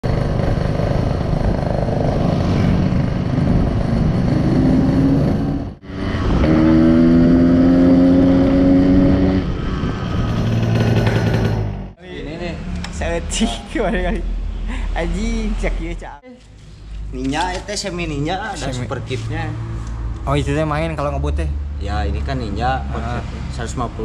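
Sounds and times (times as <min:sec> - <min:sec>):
motorcycle engine running: 0:00.0 - 0:05.6, 0:10.3 - 0:12.0.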